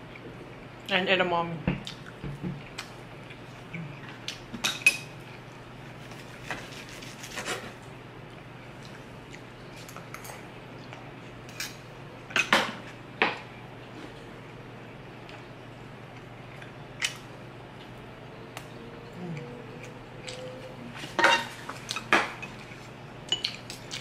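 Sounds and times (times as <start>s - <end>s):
cutlery clinking and scraping: 21.1s - 22.6s.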